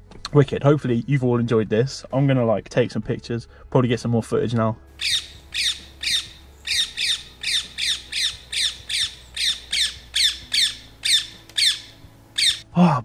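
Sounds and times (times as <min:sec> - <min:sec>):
parakeet shrill calls: 0:05.0 - 0:12.7.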